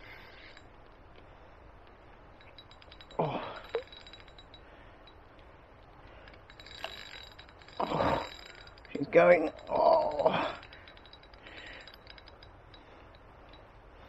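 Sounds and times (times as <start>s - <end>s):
fishing reel clicking: 2.4s - 5.2s, 6.1s - 13.6s.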